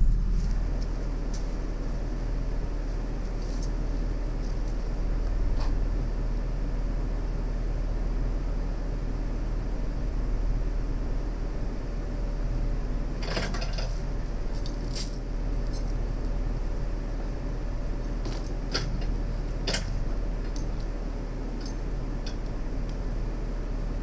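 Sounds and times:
low background rumble: 0:00.0 - 0:24.0
chain clinking and rattling: 0:13.2 - 0:16.5, 0:18.1 - 0:20.9.

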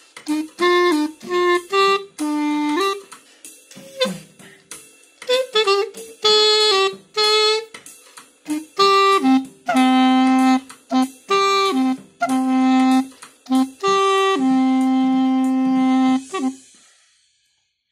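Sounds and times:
clarinet playing a simple tune: 0:00.2 - 0:03.1, 0:03.7 - 0:04.4, 0:05.3 - 0:07.8, 0:08.4 - 0:16.7.

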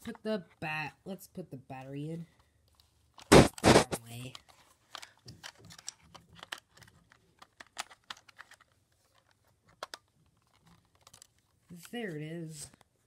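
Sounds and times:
plastic clicks and taps: 0:09.2 - 0:11.9.

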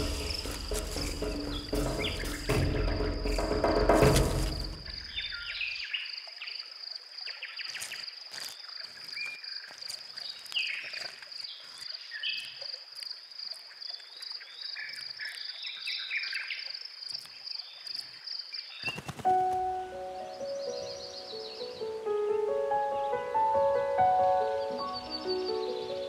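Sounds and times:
music: 0:00.0 - 0:05.0, 0:19.2 - 0:26.0.

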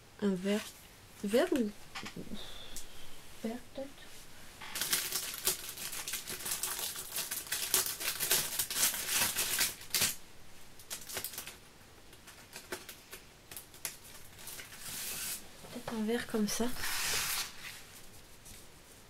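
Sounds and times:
card stock paper rustling: 0:16.6 - 0:18.6.

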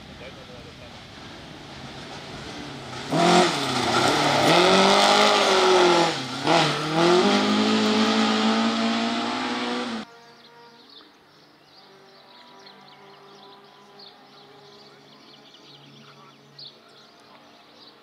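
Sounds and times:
rally car engine revving: 0:00.0 - 0:10.1.

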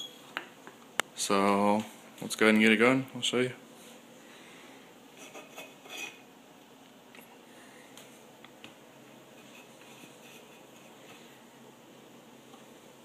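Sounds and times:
tin can scraping on countertop: 0:09.4 - 0:11.2.

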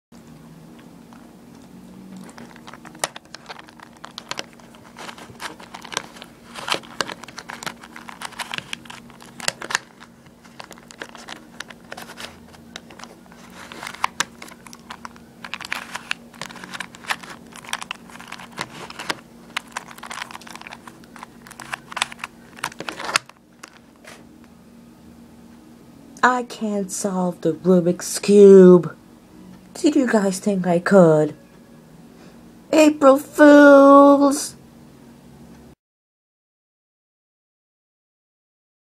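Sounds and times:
puzzle cube clicking: 0:02.3 - 0:24.2.

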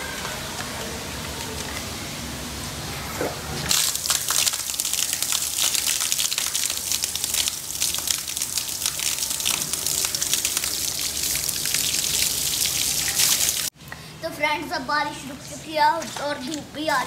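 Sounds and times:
water splashing onto concrete floor: 0:03.7 - 0:13.7.

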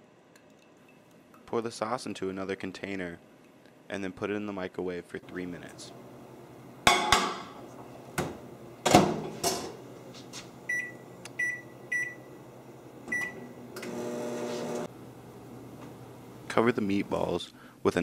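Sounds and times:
microwave humming: 0:05.3 - 0:17.2
dish set down: 0:06.9 - 0:07.6
keypad beeps: 0:10.7 - 0:12.2.

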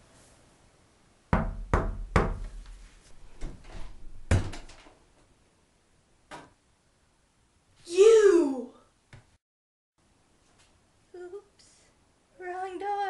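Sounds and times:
knocks on a door: 0:01.3 - 0:02.6.

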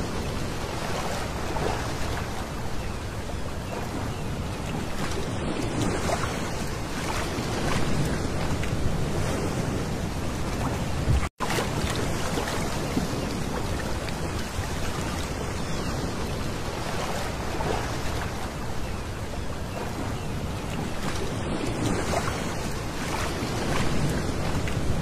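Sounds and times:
wind on microphone: 0:00.0 - 0:25.0
waves washing over pebbles: 0:04.7 - 0:18.6, 0:19.8 - 0:25.0.

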